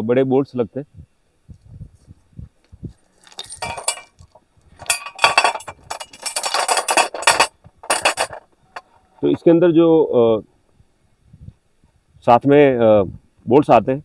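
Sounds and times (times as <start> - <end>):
bolts clinking onto metal plate: 3.2 - 8.9.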